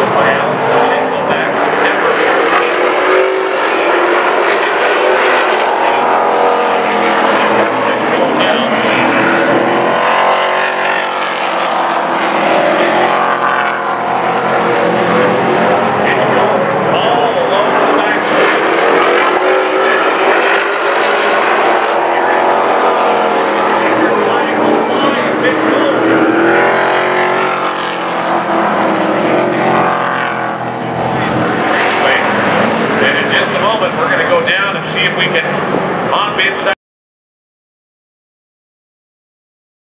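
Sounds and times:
race truck engines passing: 0.0s - 36.8s.

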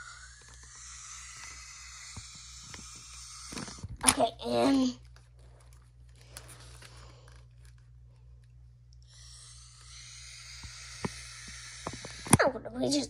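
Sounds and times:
hiss: 0.0s - 3.8s, 9.1s - 12.3s
low steady hum: 0.0s - 13.0s.

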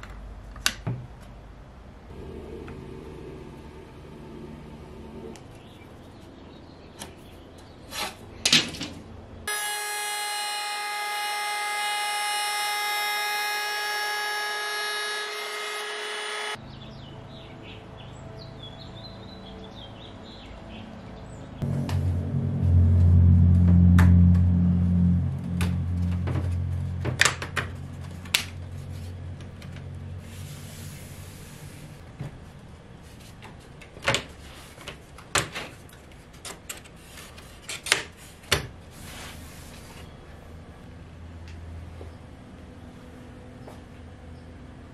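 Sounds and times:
router motor whining: 9.5s - 16.6s
faint low hum: 21.6s - 30.2s.

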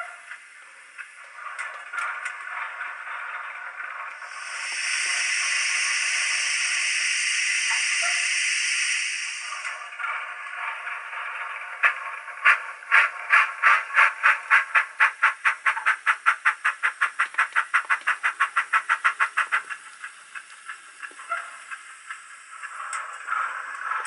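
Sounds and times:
model steam locomotive chuffs: 0.0s - 24.0s
soft hiss: 4.3s - 9.8s.

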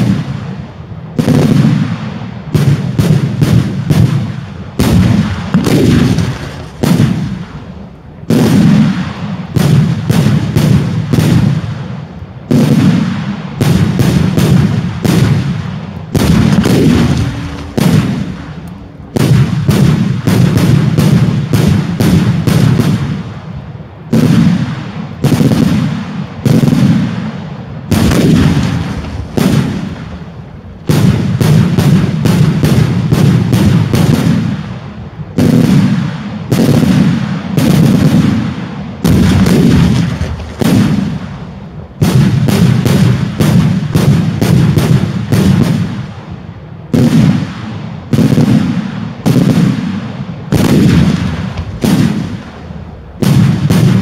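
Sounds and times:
loud firework bangs: 0.0s - 54.0s
low rumble after bursts: 16.2s - 21.0s.

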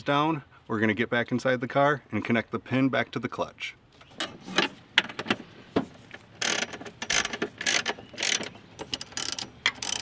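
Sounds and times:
ratchet wrench clicking: 6.4s - 10.0s.

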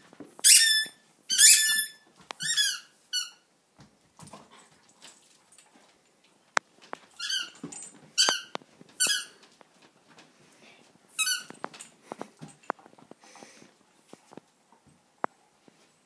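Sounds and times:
squeaky ball squeaking: 0.4s - 3.4s, 7.2s - 7.6s, 8.2s - 9.4s, 11.2s - 11.6s.

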